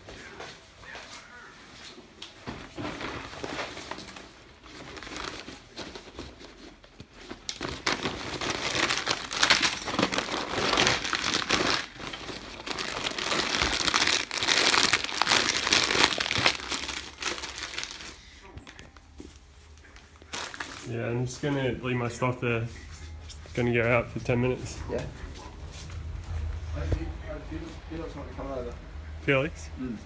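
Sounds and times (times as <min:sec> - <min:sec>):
plastic packaging crinkling: 0:02.6 - 0:22.2.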